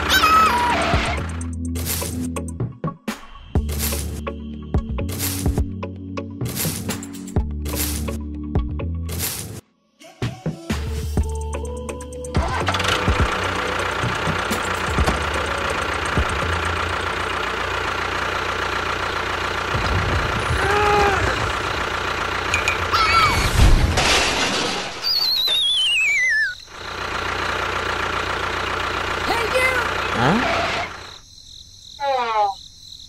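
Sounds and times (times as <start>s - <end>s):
tractor engine running: 0.0s - 2.6s, 3.6s - 8.2s, 11.2s - 24.1s, 26.5s - 31.2s
loud crash: 19.7s - 21.9s, 23.1s - 25.2s
cartoon swooping tones: 25.0s - 26.6s
falling wavering whistle: 25.0s - 26.6s.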